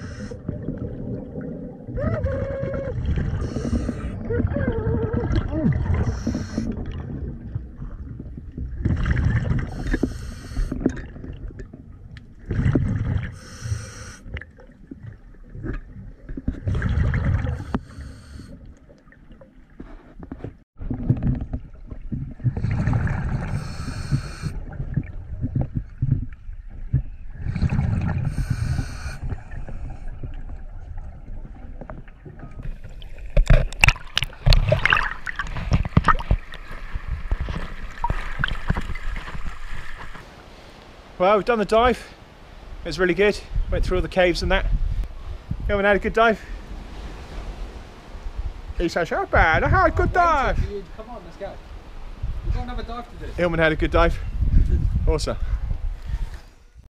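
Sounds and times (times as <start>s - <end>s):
diver's exhaled bubbles gurgling: 0.1s - 13.5s, 14.4s - 18.0s, 20.8s - 40.1s
water sloshing and splashing: 0.3s - 13.4s, 14.2s - 43.2s, 46.4s - 52.4s.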